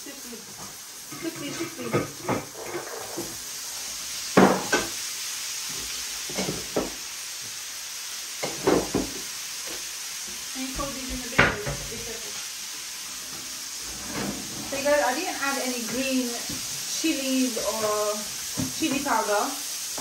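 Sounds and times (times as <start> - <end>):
food sizzling in frying pan: 0.0 - 20.0
utensils knocking and scraping pan: 0.6 - 3.4, 6.3 - 7.0, 8.4 - 9.8, 10.6 - 12.1, 13.2 - 19.4.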